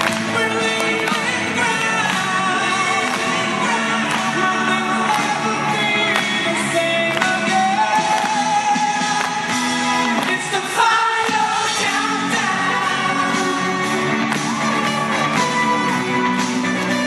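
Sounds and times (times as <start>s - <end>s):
pop music with singer: 0.0s - 17.0s.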